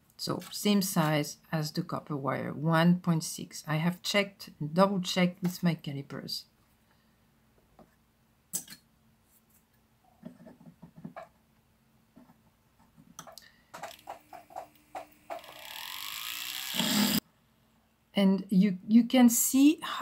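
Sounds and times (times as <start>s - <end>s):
rotary drill whining: 13.8s - 17.2s.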